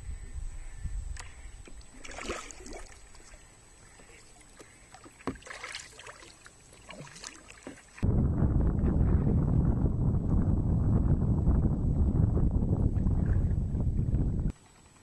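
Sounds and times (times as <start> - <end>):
wind rumbling on microphone: 0.0 - 3.3, 8.0 - 14.5
kayak paddle dipping into water: 1.2 - 8.0
water drips and splashes: 1.8 - 3.4, 4.1 - 8.0.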